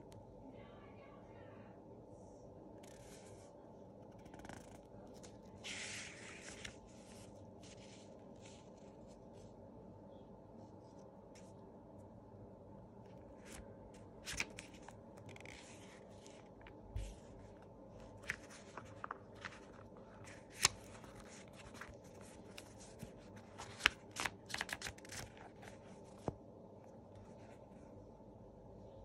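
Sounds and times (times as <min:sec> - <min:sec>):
faint steady hum: 0:00.0 - 0:29.0
paper pages rustling: 0:04.2 - 0:09.5, 0:13.2 - 0:26.4.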